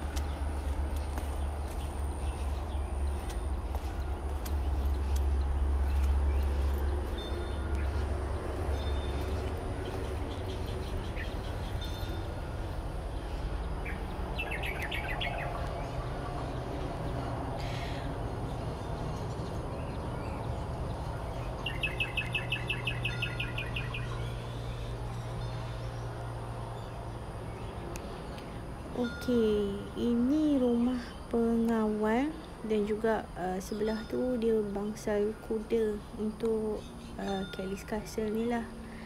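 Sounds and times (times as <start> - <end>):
bird chirping: 0.0 - 17.8, 18.5 - 28.7
steady low rumble: 0.0 - 21.8.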